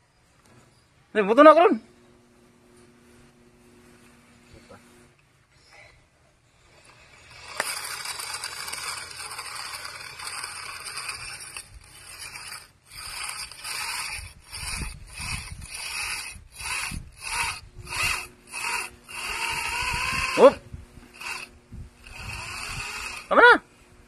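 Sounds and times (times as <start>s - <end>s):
electric drill boring into concrete: 6.8s - 23.4s.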